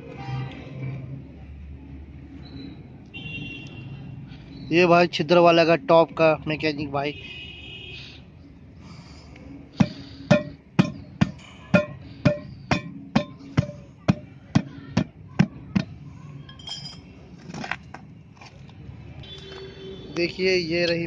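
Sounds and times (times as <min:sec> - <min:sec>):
hammer striking metal: 0:09.8 - 0:16.7.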